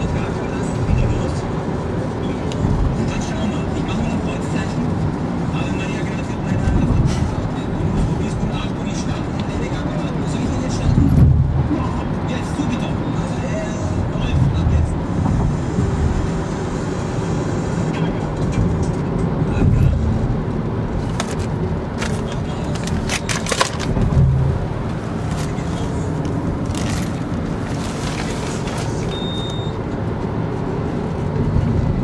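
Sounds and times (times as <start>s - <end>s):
car cabin road and engine noise: 0.0s - 32.0s
short high beep: 29.1s - 29.8s.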